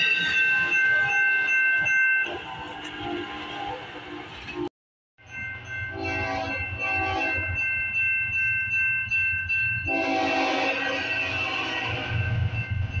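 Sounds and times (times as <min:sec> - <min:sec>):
locomotive air horn blasts: 0:05.9 - 0:07.5, 0:09.9 - 0:12.5.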